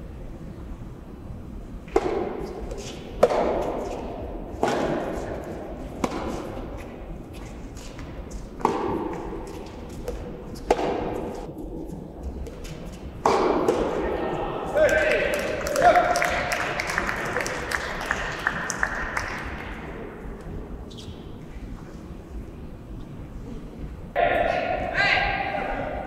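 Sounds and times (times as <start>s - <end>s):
tennis ball hit by rackets: 1.9s - 6.7s, 7.8s - 11.7s, 12.4s - 14.0s.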